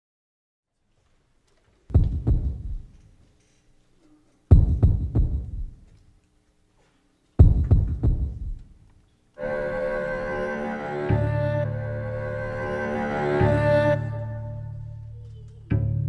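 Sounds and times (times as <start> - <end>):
deep booming percussion hits: 1.9 - 2.9, 4.5 - 5.8, 7.4 - 8.7.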